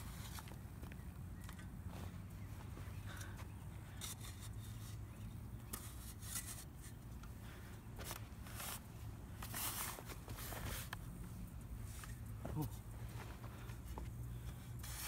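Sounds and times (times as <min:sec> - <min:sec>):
spade scraping dry soil: 0:00.0 - 0:00.6, 0:03.2 - 0:07.3, 0:08.0 - 0:11.0, 0:14.3 - 0:15.0.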